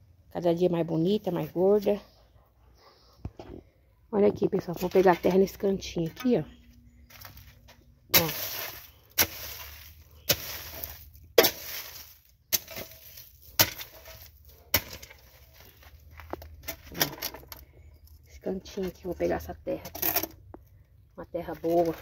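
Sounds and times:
hoe blade scraping earth: 0:07.2 - 0:17.5
hoe chopping into dry soil: 0:08.1 - 0:16.0.

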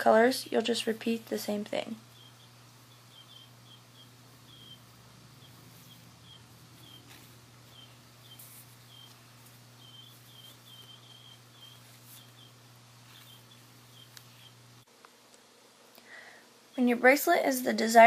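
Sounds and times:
low steady hum: 0:00.0 - 0:18.0
small animal chirping: 0:02.0 - 0:14.8.

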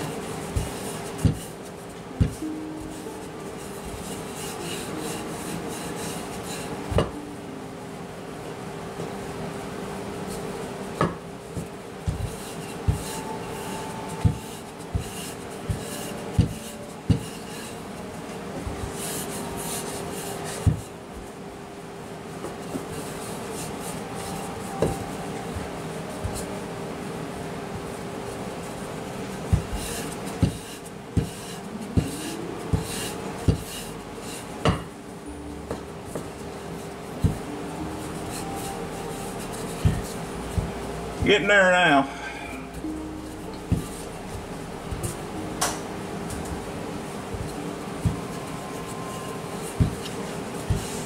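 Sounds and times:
rolling pin rubbing and knocking: 0:00.0 - 0:01.5, 0:29.4 - 0:34.9
rolling pin rolling over dough: 0:00.0 - 0:07.2, 0:08.9 - 0:21.4, 0:22.3 - 0:34.9, 0:35.7 - 0:42.1, 0:43.2 - 0:51.0.

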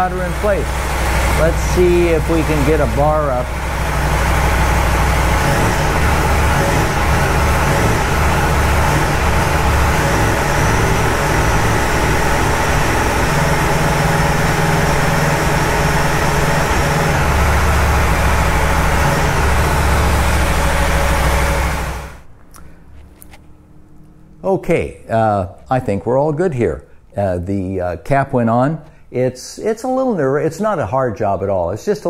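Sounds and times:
motorcycle engine idling: 0:00.0 - 0:22.9.

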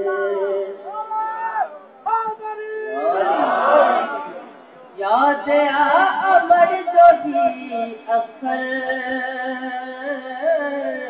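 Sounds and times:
man singing devotional recitation: 0:00.0 - 0:01.0, 0:05.0 - 0:11.0.

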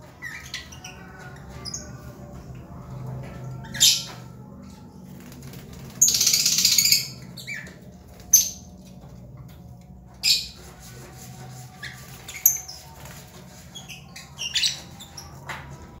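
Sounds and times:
lovebirds chattering and squawking: 0:00.0 - 0:02.1, 0:11.8 - 0:15.4.

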